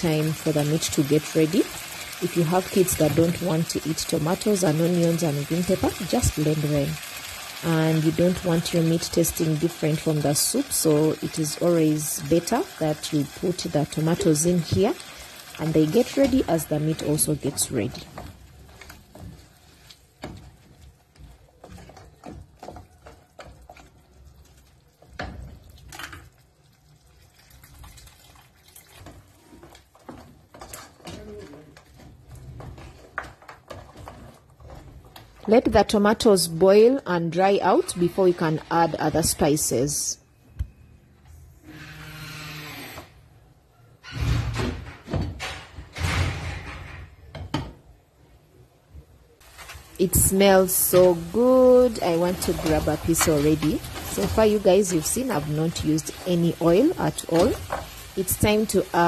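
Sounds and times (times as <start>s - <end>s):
spatula scraping pot: 13.4s - 25.5s, 29.0s - 36.1s, 49.4s - 59.0s
spatula stirring thick sauce: 13.4s - 35.8s, 49.4s - 59.0s
wooden spoon clattering: 16.0s - 24.2s, 29.0s - 35.6s, 49.5s - 59.0s.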